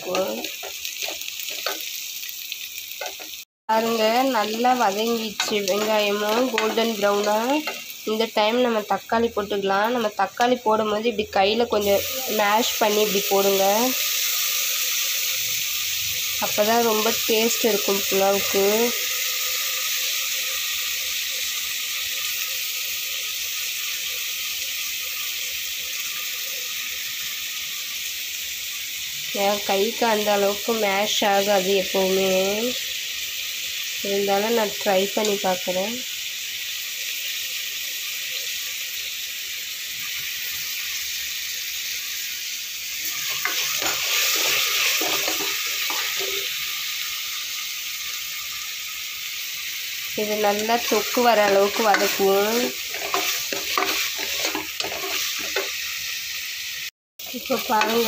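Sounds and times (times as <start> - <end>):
spatula stirring and scraping: 0.0 - 1.9, 5.3 - 8.0, 43.1 - 46.5, 50.6 - 55.8
vegetables sizzling in oil: 0.0 - 58.0.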